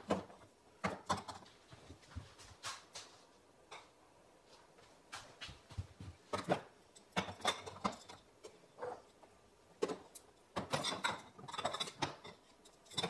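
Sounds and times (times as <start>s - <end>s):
glass jars clinking on shelf: 10.6s - 13.0s.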